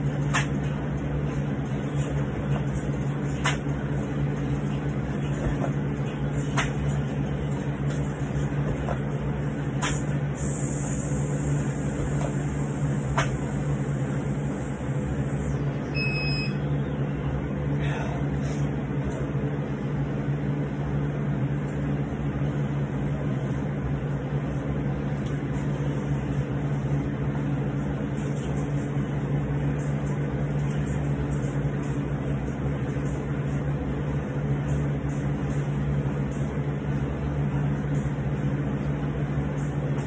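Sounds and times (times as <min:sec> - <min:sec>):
low mechanical motor hum: 0:00.0 - 0:40.0
short high beep: 0:16.0 - 0:16.6.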